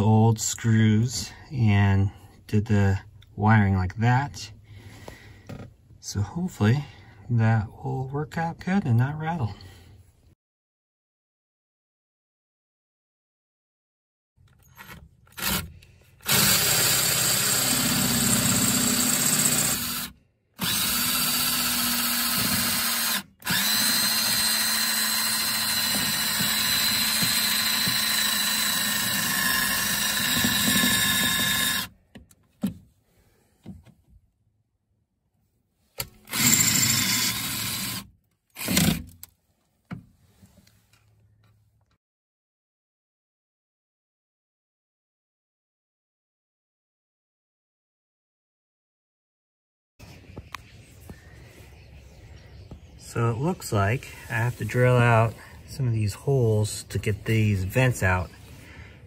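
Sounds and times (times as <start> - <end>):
cordless drill running: 15.3 - 32.0, 36.2 - 39.0.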